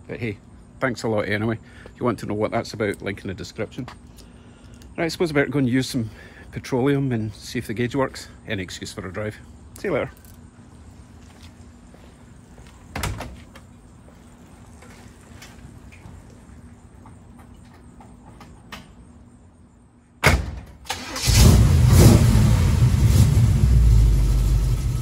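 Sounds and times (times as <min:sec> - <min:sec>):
engine running with low rumble: 0:00.0 - 0:19.8, 0:21.2 - 0:25.0
engine cranking: 0:20.9 - 0:22.5.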